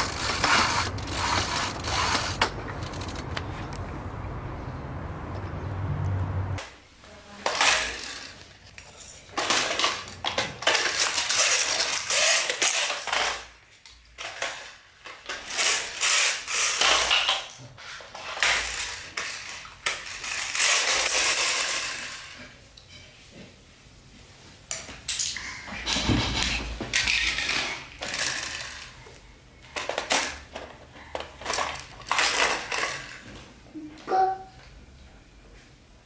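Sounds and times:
plastic toys clattering on wood floor: 0.0 - 3.3, 7.4 - 23.0, 24.8 - 33.5.

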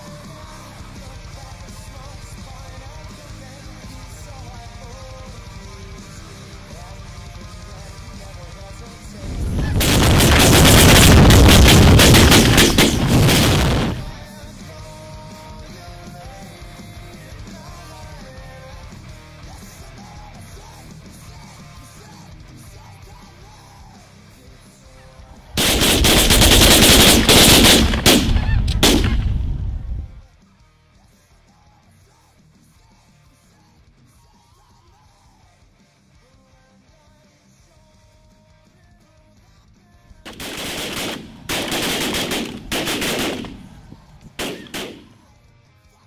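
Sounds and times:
shotgun volley: 9.3 - 14.3, 25.6 - 29.9, 40.3 - 45.3.

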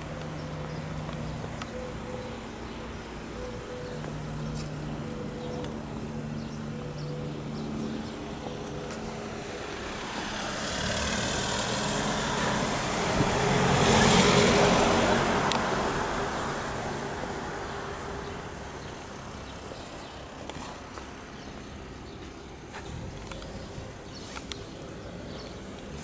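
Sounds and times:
car passing: 3.8 - 19.8.

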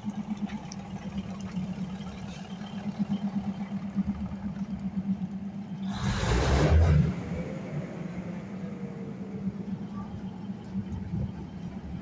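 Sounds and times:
diesel train engine idling: 0.0 - 12.0.

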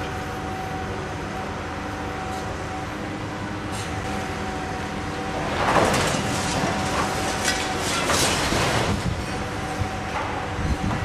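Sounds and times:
excavator engine running: 0.0 - 11.0
masonry crashing and crumbling: 5.3 - 9.3.

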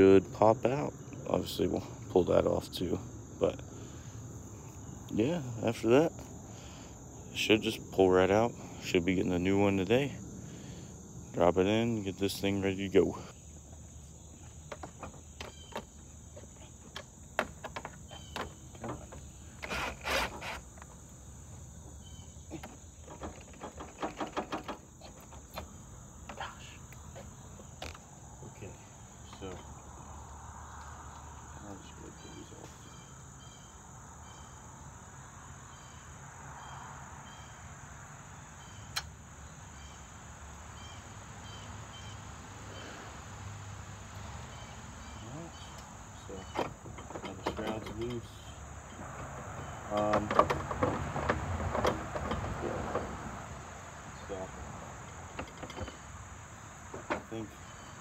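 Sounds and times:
high insect chirps: 0.0 - 58.0
insects buzzing: 0.0 - 58.0
tools clicking and clanking: 45.8 - 48.5, 49.2 - 53.1
tools rattling: 46.4 - 48.4.

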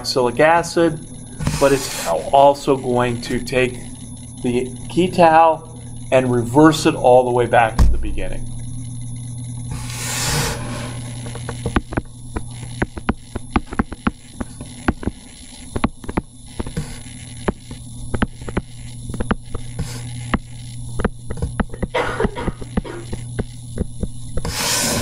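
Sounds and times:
low electrical hum: 0.0 - 25.0
stylus tapping on tablet screen: 11.4 - 24.6.

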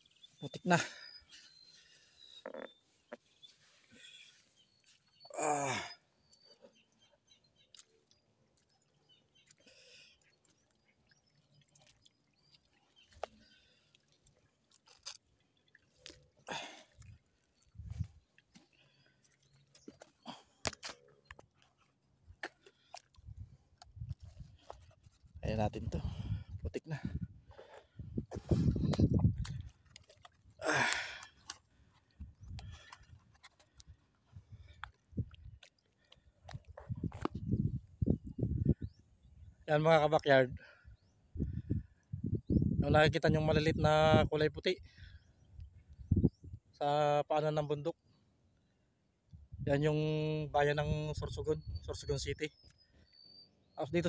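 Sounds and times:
footsteps squelching in mud: 0.9 - 25.4, 27.5 - 37.4.

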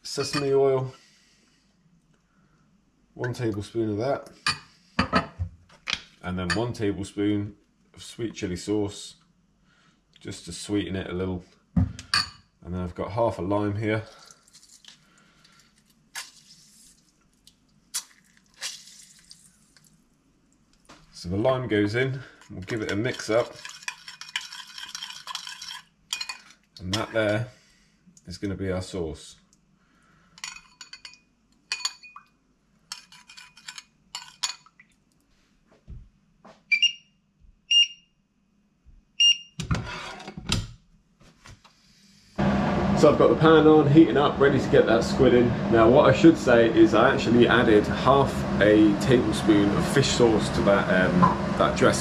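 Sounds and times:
lime squishing and dripping: 14.1 - 21.0
spoon clinking on ceramic bowl: 30.4 - 32.2
short high beeps: 37.7 - 38.0
frying pan scraping on glass: 39.7 - 40.4.

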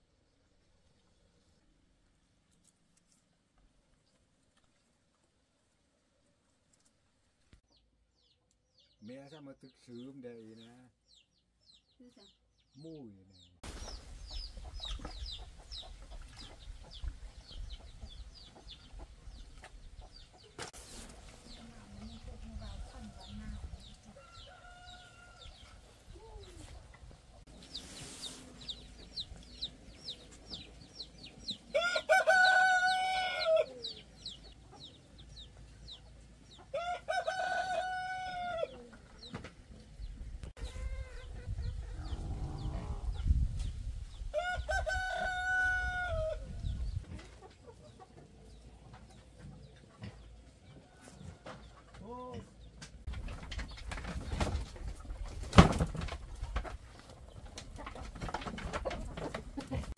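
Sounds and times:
rooster crowing: 31.7 - 33.9, 36.7 - 38.7, 44.4 - 46.5.

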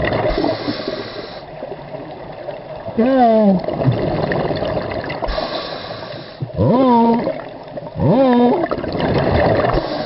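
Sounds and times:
underwater hiss: 0.2 - 1.6, 5.2 - 6.5, 9.6 - 10.0
muffled voice humming underwater: 2.9 - 3.8, 6.4 - 8.9.

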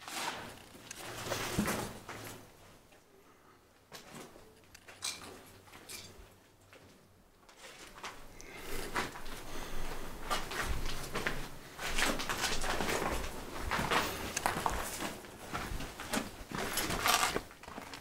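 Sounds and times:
footsteps crunching on rubble: 9.0 - 18.0.

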